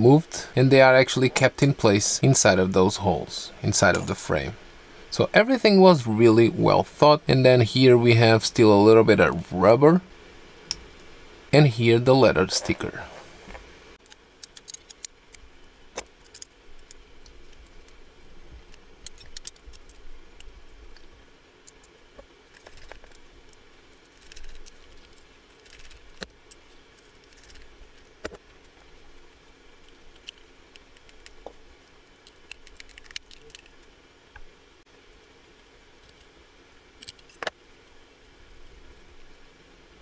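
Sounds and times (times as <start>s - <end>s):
small parts clicking and tapping: 14.0s - 18.0s, 18.6s - 29.2s, 29.8s - 34.5s.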